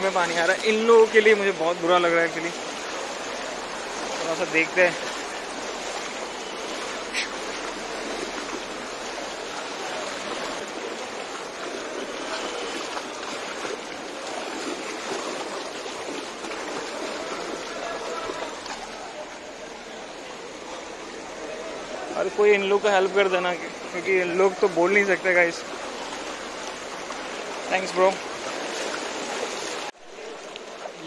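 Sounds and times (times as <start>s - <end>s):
water splashing around legs: 0.0s - 21.3s, 22.8s - 31.0s
floodwater rushing: 0.0s - 31.0s.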